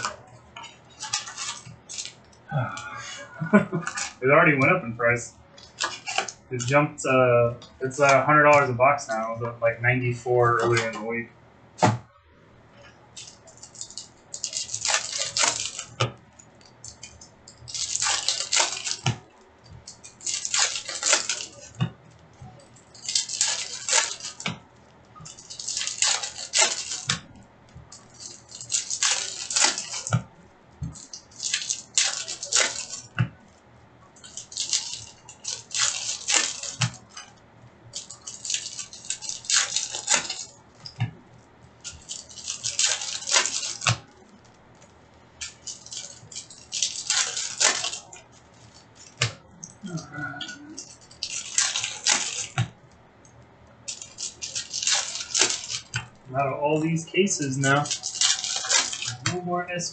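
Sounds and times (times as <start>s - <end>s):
plastic wrappers crinkling: 0.0s - 59.9s
cards clicking: 13.2s - 22.3s, 28.0s - 33.6s, 41.9s - 53.3s.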